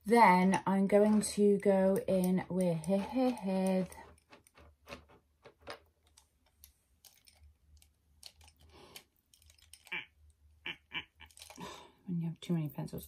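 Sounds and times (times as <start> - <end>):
makeup pencils clicking and rattling: 0.9 - 10.0, 11.3 - 11.7.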